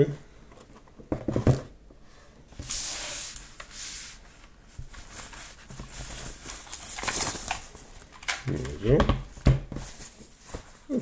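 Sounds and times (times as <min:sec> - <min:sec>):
plastic wrapping crinkling: 0:05.0 - 0:09.0.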